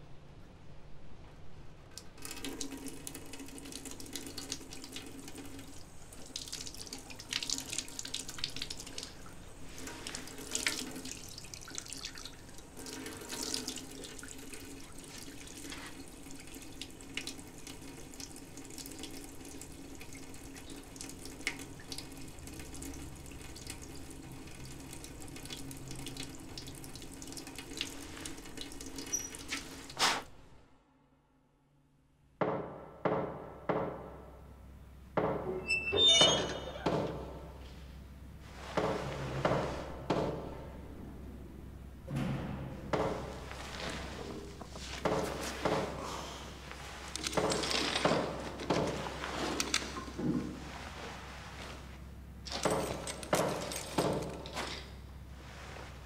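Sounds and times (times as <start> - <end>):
water running into a basin: 2.0 - 30.0.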